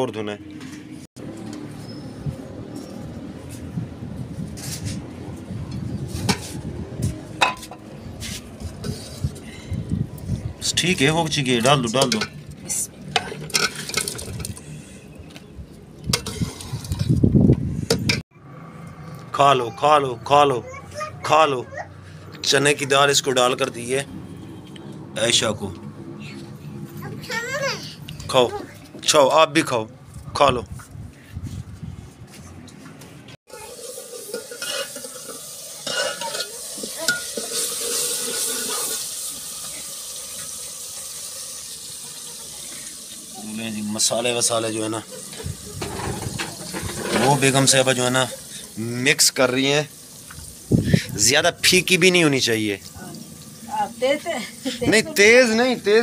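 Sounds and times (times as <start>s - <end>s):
metal ladle scraping a pot: 7.4s - 9.4s, 13.2s - 15.0s, 16.1s - 17.2s, 33.8s - 39.3s, 45.3s - 47.8s
food sizzling in a pot: 33.5s - 56.0s.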